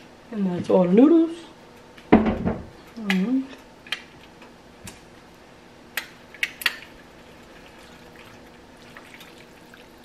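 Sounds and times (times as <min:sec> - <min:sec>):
wet spaghetti turning in sauce: 0:06.3 - 0:10.0.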